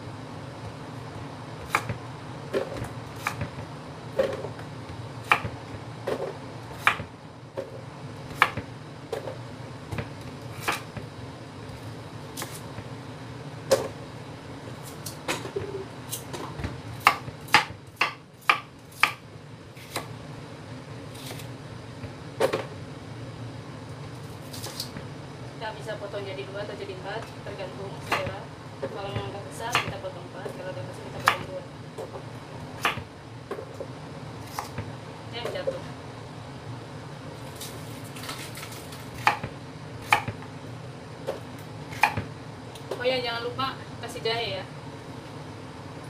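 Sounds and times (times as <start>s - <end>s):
steady low hum: 0.0s - 46.0s
knife chopping on wooden board: 1.6s - 3.6s, 5.2s - 7.1s, 8.3s - 8.7s, 16.5s - 19.2s, 39.2s - 40.4s, 41.3s - 42.3s.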